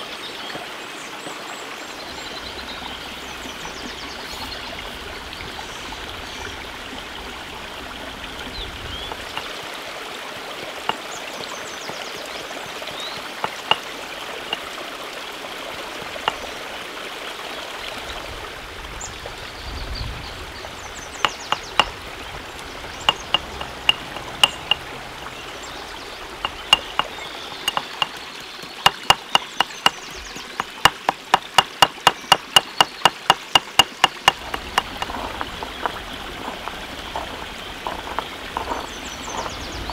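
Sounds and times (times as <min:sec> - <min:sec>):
stream water flowing: 0:00.0 - 0:39.9
stone pestle pounding in mortar: 0:13.4 - 0:13.8, 0:21.2 - 0:21.9, 0:23.1 - 0:24.8, 0:26.4 - 0:36.6, 0:37.2 - 0:39.9.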